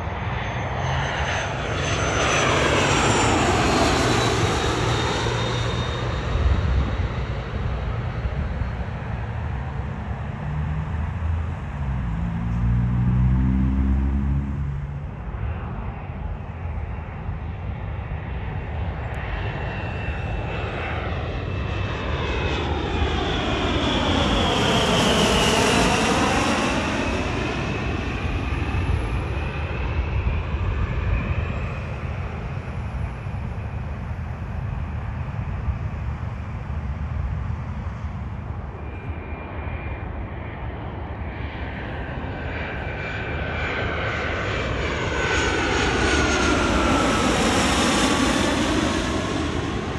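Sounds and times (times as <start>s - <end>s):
high-pitched jet engine whine: 0.0s - 49.9s
jet passing low overhead: 0.0s - 49.9s.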